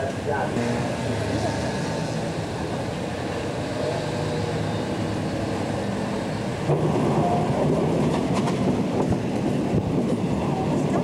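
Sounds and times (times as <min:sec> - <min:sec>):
train rumble on board: 0:00.0 - 0:11.0
sharp rail clacks: 0:07.9 - 0:09.4.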